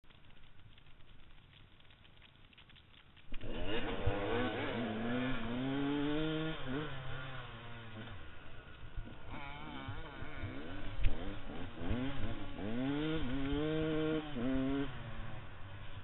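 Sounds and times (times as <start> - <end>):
dirt bike engine revving: 3.4 - 16.0.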